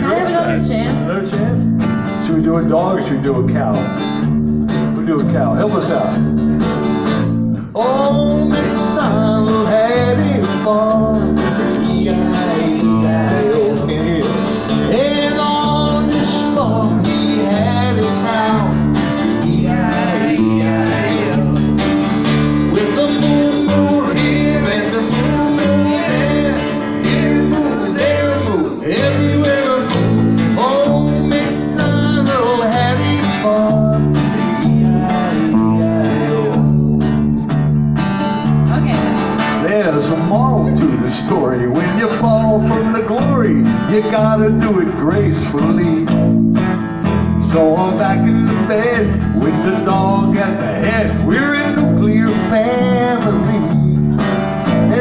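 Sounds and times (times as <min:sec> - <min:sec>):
acoustic guitar strumming: 0:00.0 - 0:55.0
fretless bass sliding melody: 0:00.0 - 0:55.0.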